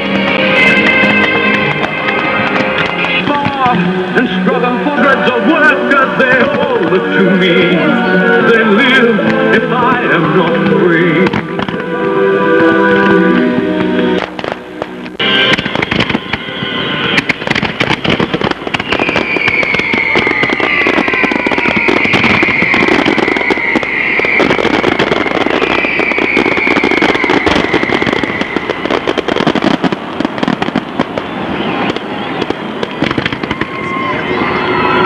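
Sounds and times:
fireworks crackling and banging: 0.0 - 35.0
long high descending whistle: 18.7 - 28.9, 33.5 - 35.0.

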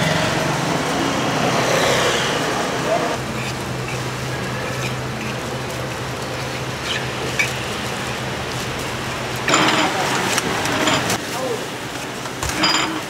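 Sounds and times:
continuous low hum: 2.6 - 13.0.

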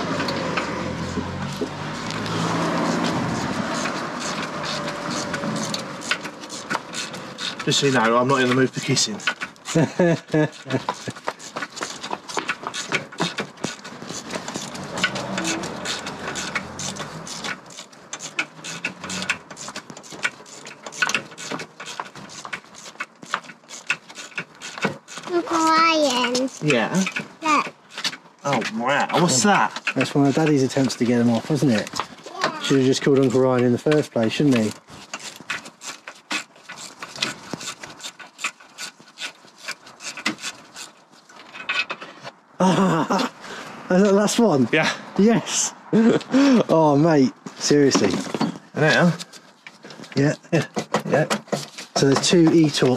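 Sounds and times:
hand tools clicking on metal: 0.0 - 42.4.

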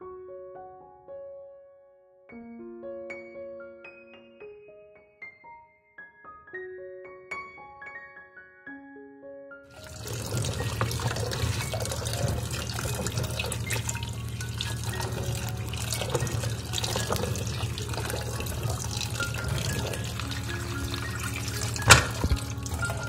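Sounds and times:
piano music: 0.0 - 23.0
tap water running into basin: 9.7 - 23.0.

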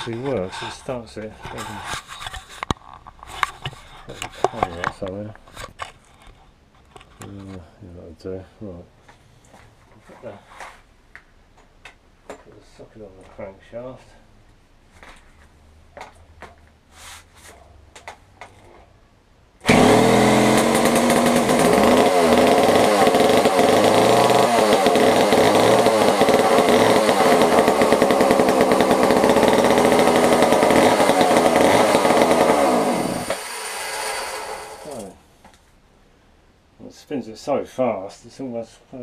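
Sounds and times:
chainsaw engine revving: 19.6 - 35.2.

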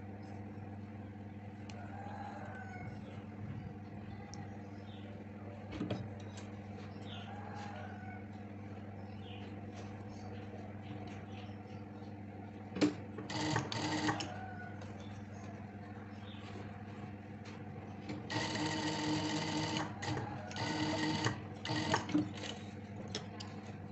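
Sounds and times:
sewing machine motor humming: 12.8 - 14.4, 18.2 - 23.4.

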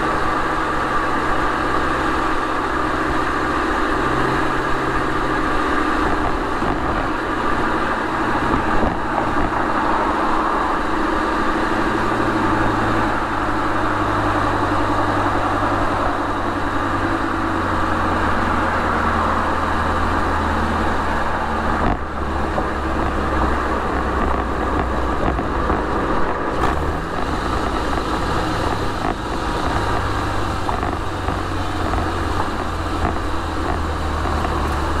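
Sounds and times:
car engine and exhaust: 0.0 - 35.0
road and tyre noise: 0.0 - 35.0.

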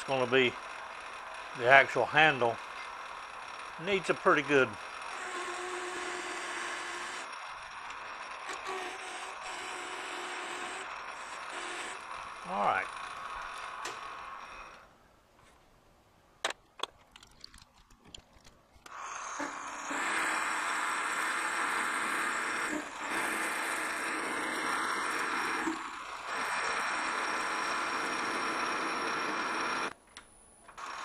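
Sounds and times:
metal lathe cutting hiss: 18.9 - 29.9.

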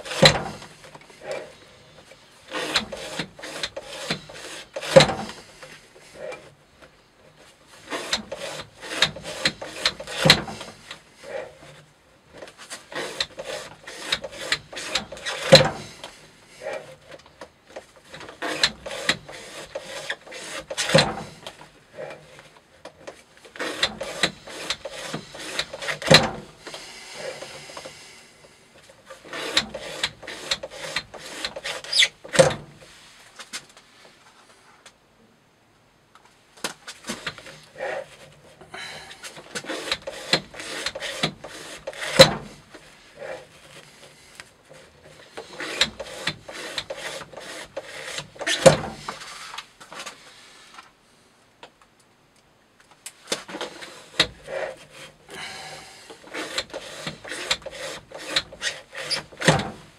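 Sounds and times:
knife cutting through rope: 2.5 - 6.4, 7.8 - 11.8, 12.4 - 17.2, 17.8 - 22.4, 23.5 - 28.0, 29.1 - 32.4, 38.8 - 44.0, 44.7 - 49.6, 53.3 - 59.8.

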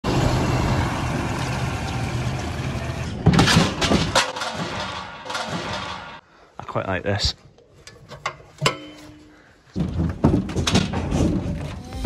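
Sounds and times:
tractor diesel engine running: 0.0 - 6.2
loud knocks and rattles: 3.2 - 6.2, 9.7 - 11.7.

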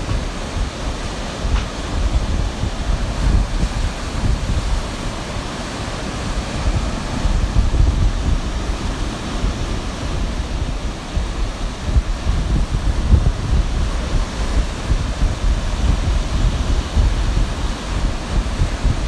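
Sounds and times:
ocean surf hiss: 0.0 - 19.0
wind buffeting microphone: 0.0 - 19.0.

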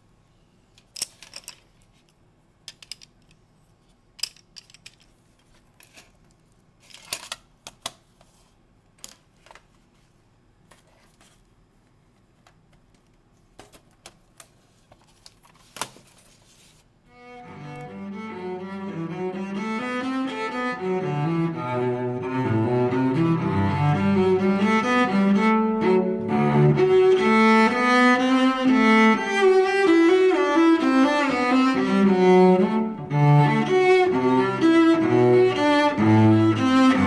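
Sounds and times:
metal tins and pencils clattering: 0.9 - 1.7, 4.2 - 5.1
music: 17.2 - 37.0.

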